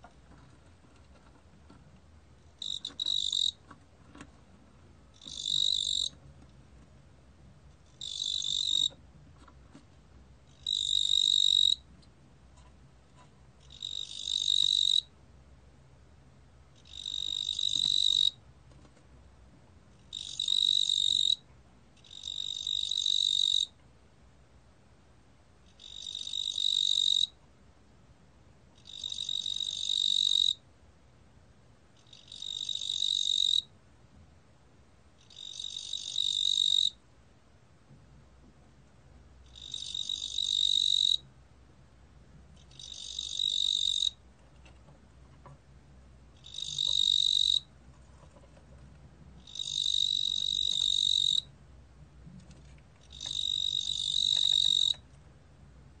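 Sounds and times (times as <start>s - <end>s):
cricket chirping: 2.6s - 3.6s, 5.2s - 6.1s, 8.0s - 8.9s, 10.6s - 11.8s, 13.7s - 15.1s, 16.8s - 18.4s, 20.1s - 21.4s, 22.0s - 23.8s, 25.8s - 27.4s, 28.8s - 30.6s, 32.0s - 33.7s, 35.2s - 37.0s, 39.5s - 41.2s, 42.7s - 44.2s, 46.4s - 47.7s, 49.4s - 51.5s, 53.0s - 55.0s.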